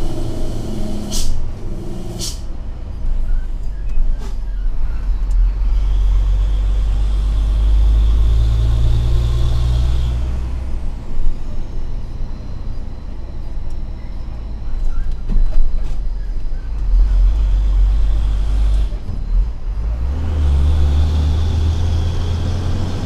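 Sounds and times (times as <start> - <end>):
diesel engine droning: 0.0 - 23.0
short sharp air hisses: 0.8 - 1.4, 2.0 - 2.5.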